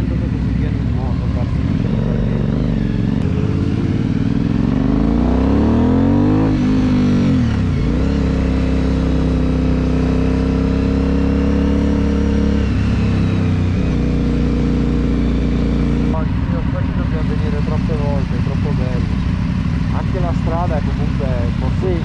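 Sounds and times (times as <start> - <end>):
motorcycle engine accelerating: 0.0 - 22.0.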